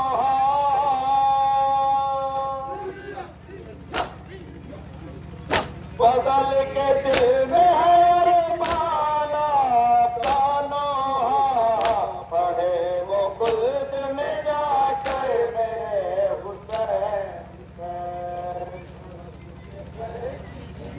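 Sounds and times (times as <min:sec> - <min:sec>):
men chanting a lament: 0:00.0 - 0:20.8
hands slapping chest: 0:05.5 - 0:05.8, 0:08.6 - 0:08.9, 0:10.2 - 0:10.5, 0:11.8 - 0:12.1, 0:13.4 - 0:13.6, 0:15.0 - 0:15.3.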